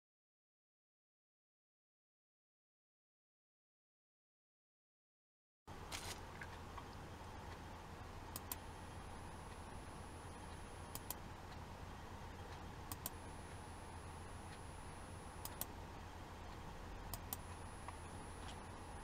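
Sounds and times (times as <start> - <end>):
faint high whine: 5.7 - 19.0
low steady hum: 5.7 - 19.0
soft clicks: 8.3 - 8.7, 10.5 - 11.7, 12.5 - 13.6, 15.3 - 15.8, 16.4 - 18.8.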